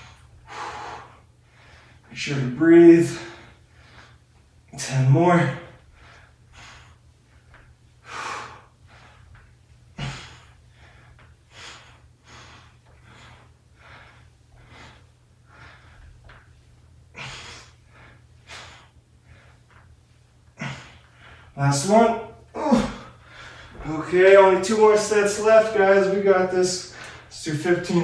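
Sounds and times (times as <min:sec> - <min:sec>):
man breathing hard: 0:00.0 - 0:02.1, 0:03.0 - 0:04.4, 0:05.7 - 0:19.9, 0:20.5 - 0:21.6, 0:22.5 - 0:24.0, 0:26.8 - 0:27.4.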